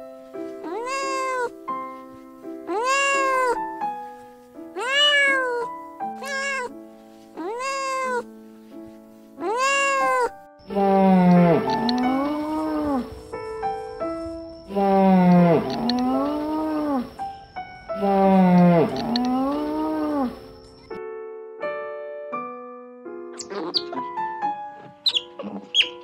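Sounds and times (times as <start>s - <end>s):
background music: 0.0s - 26.0s
cat meowing: 0.6s - 1.6s, 2.7s - 3.7s, 4.8s - 6.7s, 7.4s - 8.3s, 9.4s - 13.1s, 14.7s - 17.1s, 18.0s - 20.4s, 23.4s - 24.0s
low noisy animal call: 2.7s - 3.6s, 9.4s - 13.3s, 14.7s - 17.3s, 17.9s - 20.6s.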